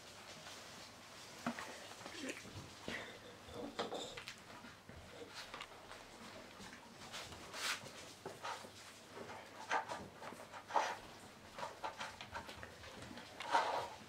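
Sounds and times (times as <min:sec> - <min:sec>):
puppy paws scratching and clicking: 0:04.0 - 0:14.0.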